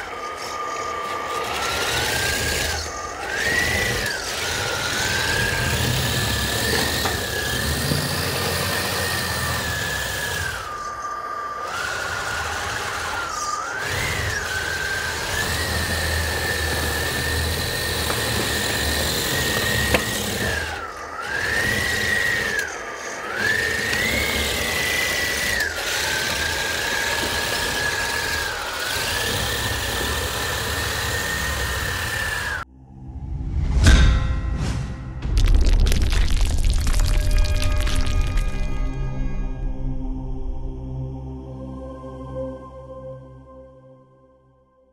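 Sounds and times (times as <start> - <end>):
electric motors whining: 0.0 - 32.7
low rumble: 32.6 - 42.0.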